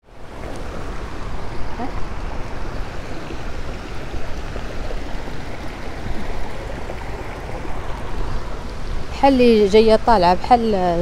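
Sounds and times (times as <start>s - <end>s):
water rushing over stones: 0.0s - 10.5s
wind rumble on microphone: 0.0s - 11.0s.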